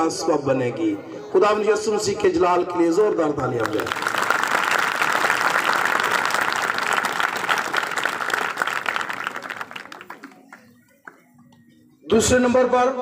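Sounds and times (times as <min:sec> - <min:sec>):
crowd applauding: 0:03.6 - 0:11.4.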